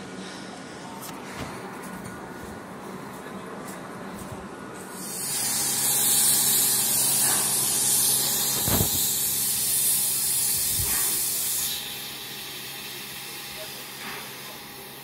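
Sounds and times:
steam locomotive venting steam: 4.9 - 15.0.

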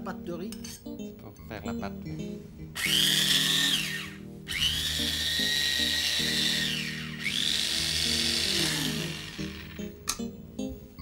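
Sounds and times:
electric chopper motor whining: 2.8 - 9.9.

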